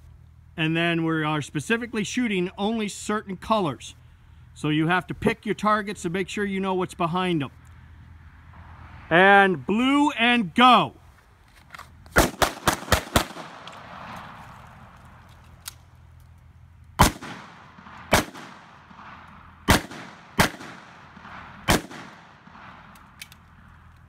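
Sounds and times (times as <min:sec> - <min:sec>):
pistol shots: 0:12.2 - 0:14.4, 0:17.0 - 0:23.3.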